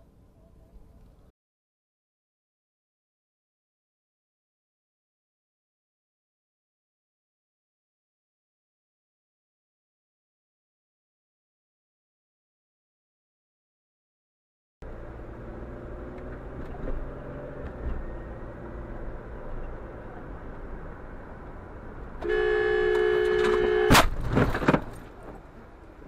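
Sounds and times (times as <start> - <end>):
road noise inside moving car: 14.8 - 26.0
car horn blaring: 22.2 - 24.1
car collision crash: 23.4 - 25.4.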